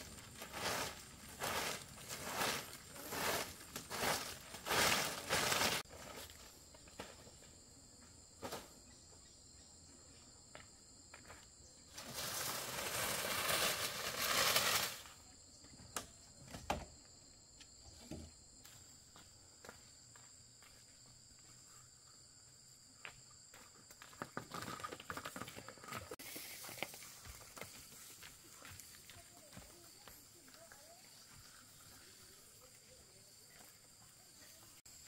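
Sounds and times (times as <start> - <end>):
broom swishing over dirt: 0.0 - 6.2, 11.9 - 15.1, 26.2 - 28.9
insects droning: 0.0 - 35.0.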